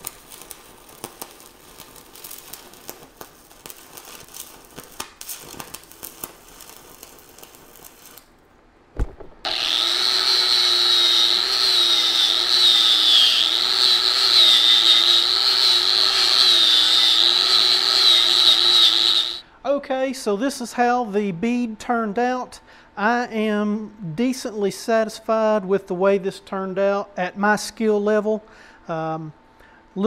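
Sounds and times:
welding arc crackling: 0.0 - 8.4, 9.0 - 19.4
angle grinder wire wheel: 9.4 - 19.4.

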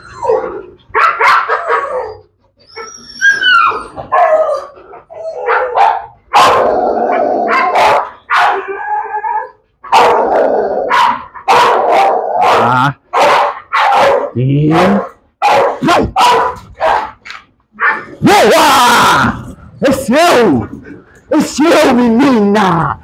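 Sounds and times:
dog whining: 0.0 - 12.7
dog barking: 0.9 - 2.2, 4.1 - 4.6, 5.4 - 8.7, 9.8 - 17.2, 17.8 - 18.2.

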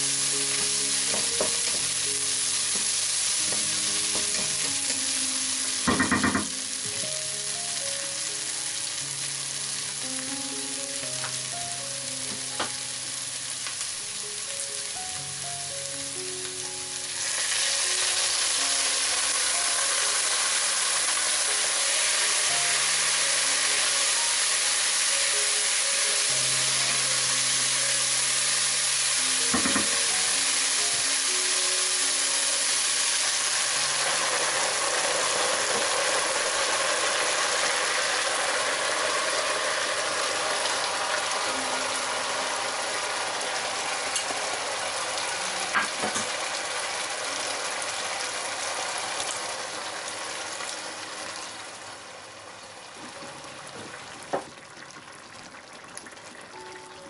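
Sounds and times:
vegetables sizzling in a pot: 0.0 - 57.0
knock: 1.1 - 1.9, 3.5 - 4.8, 5.9 - 6.6, 29.5 - 30.0.

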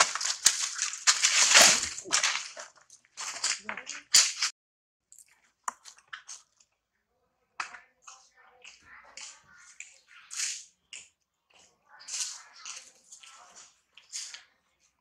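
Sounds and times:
brief rustling: 0.0 - 4.5.

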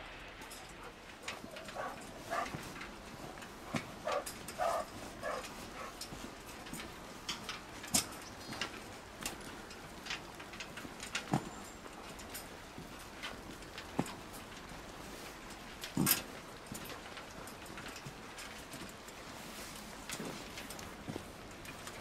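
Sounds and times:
dog paws clicking on metal: 0.0 - 22.0
footsteps on metal grating: 0.0 - 22.0.

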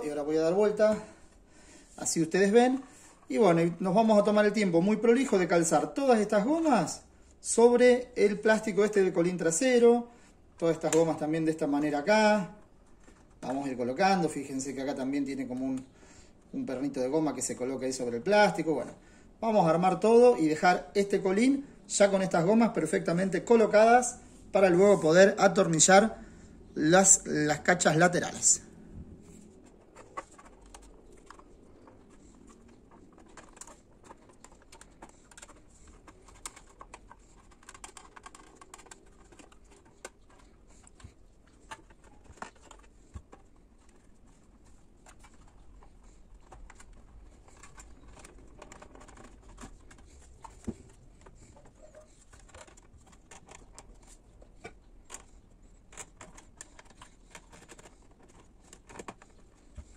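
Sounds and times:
rubber grommets clicking on plastic: 26.6 - 59.9.

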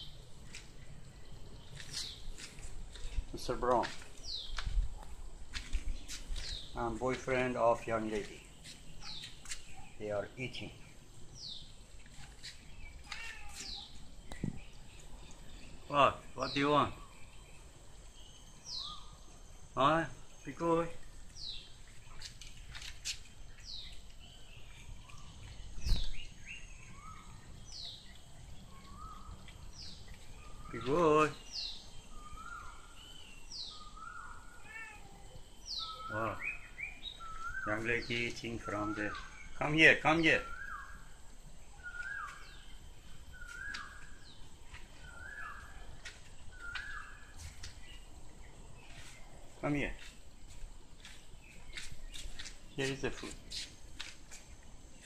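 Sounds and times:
bird calling: 12.3 - 20.8, 21.4 - 50.1.

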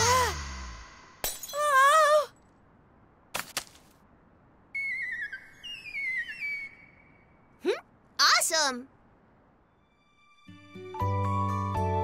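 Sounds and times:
whistling tone falling in steps: 4.7 - 7.5.

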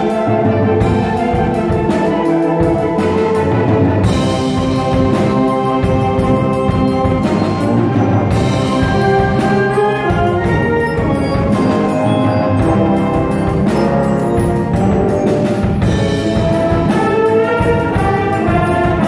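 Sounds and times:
wind ensemble playing: 0.0 - 19.0
percussion strokes: 4.0 - 19.0.

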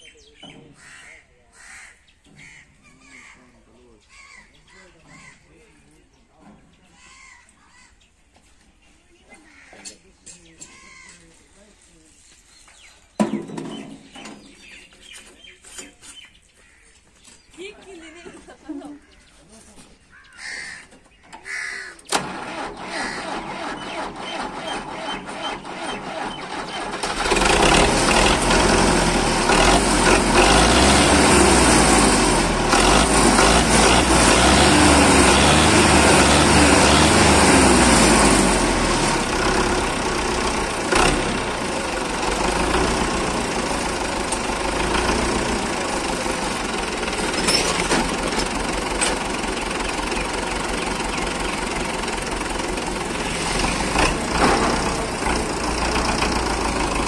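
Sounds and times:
diesel engine cranking: 21.1 - 57.0
tractor engine running: 22.0 - 57.0.

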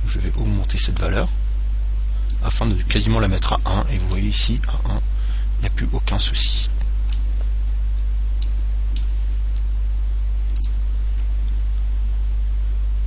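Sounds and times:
low electrical mains hum: 0.0 - 13.0
computer mouse clicks: 10.6 - 10.8.

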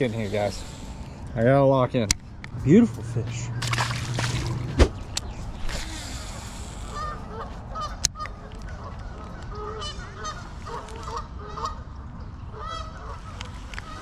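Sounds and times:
geese honking: 6.0 - 11.8, 12.6 - 14.0.

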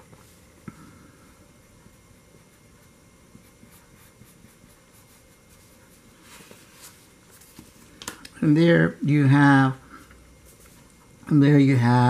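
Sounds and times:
pencil scratching on paper: 2.4 - 7.6.

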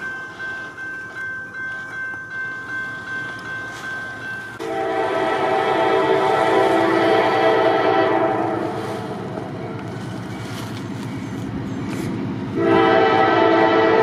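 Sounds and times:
rhythmic train wheel pulse: 0.0 - 14.0
train horn: 4.6 - 9.8, 12.6 - 14.0.

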